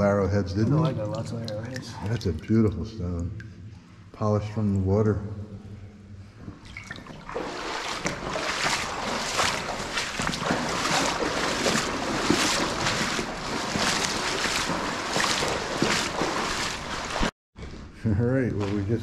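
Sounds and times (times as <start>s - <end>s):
footsteps wading through water: 6.4s - 17.3s, 18.5s - 19.0s.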